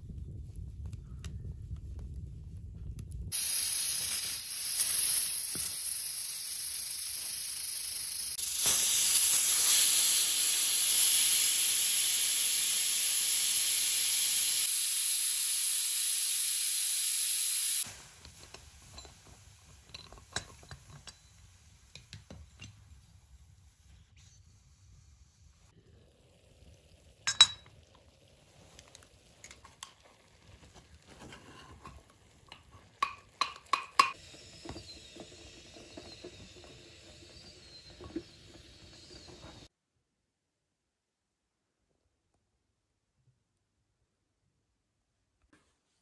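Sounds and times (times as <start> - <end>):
pressure cooker steam hissing: 3.3 - 23.0, 33.0 - 39.7.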